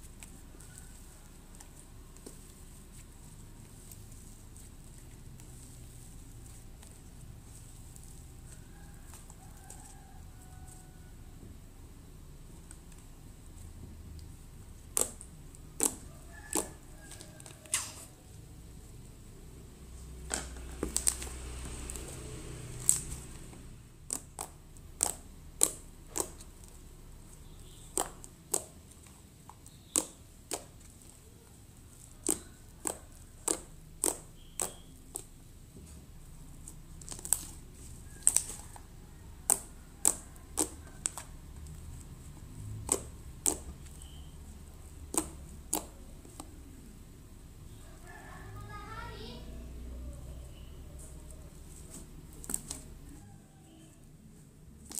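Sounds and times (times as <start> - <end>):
slime clicking and popping: 14.2 - 18.0, 20.2 - 31.2, 31.9 - 35.5, 36.6 - 46.6.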